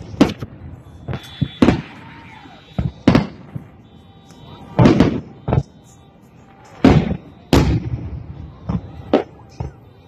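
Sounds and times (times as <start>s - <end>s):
firework booms: 0.0s - 3.8s, 4.4s - 5.8s, 6.7s - 9.9s
smaller firework bang: 1.1s - 2.0s, 2.8s - 3.7s, 6.8s - 9.8s.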